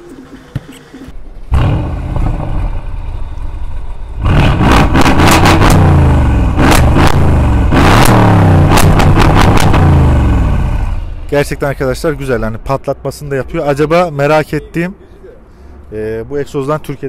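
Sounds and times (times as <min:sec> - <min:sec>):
car engine starting and revving: 0:01.0 - 0:11.4
sharp exhaust pops: 0:04.2 - 0:11.0.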